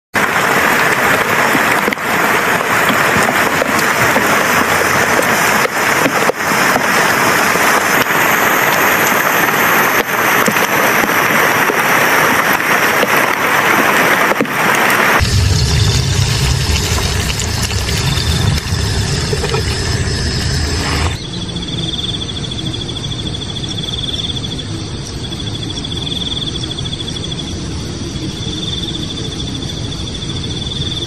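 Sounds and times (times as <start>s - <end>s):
heavy rain on foliage: 0.2s - 21.2s.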